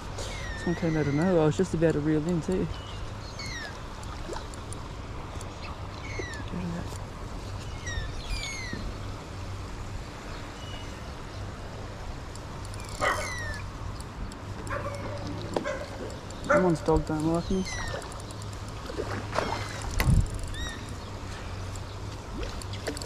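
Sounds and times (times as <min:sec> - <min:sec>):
dog yelping: 0:13.0 - 0:13.6.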